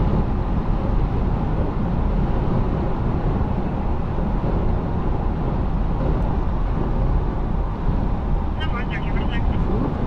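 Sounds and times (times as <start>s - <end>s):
car cabin road and engine rumble: 0.0s - 10.0s.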